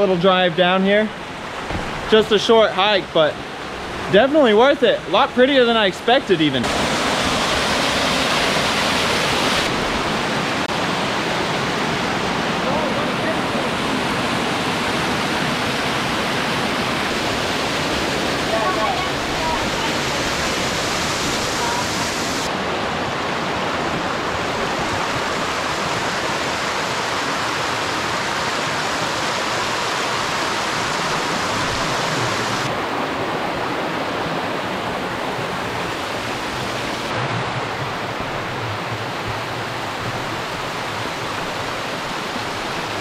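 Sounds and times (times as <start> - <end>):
waterfall rushing over rocks: 0.0 - 43.0.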